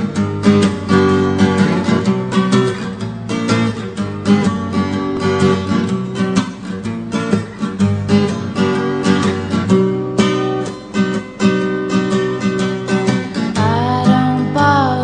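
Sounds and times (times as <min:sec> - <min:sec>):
strummed guitar chords: 0:00.0 - 0:15.0.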